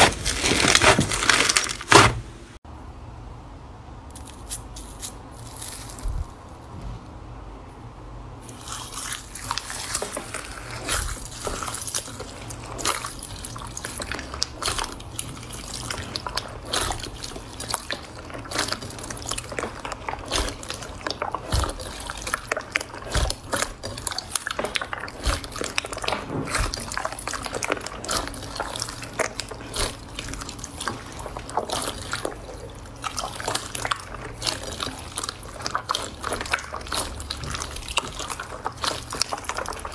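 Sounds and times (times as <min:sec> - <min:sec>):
wet slime squelching and popping: 0:08.5 - 0:39.9.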